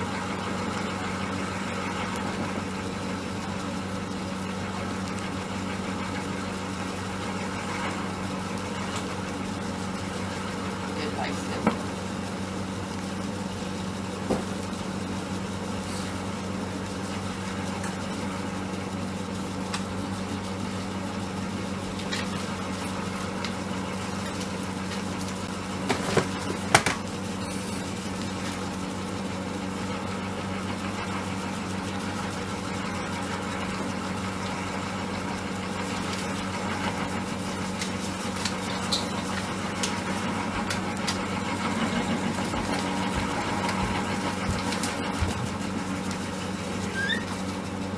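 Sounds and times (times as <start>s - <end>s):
machine motor humming: 0.0s - 47.9s.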